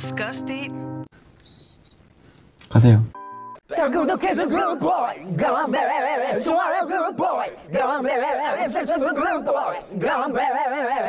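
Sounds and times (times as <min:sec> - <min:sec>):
men singing without accompaniment: 0:03.7 - 0:11.0.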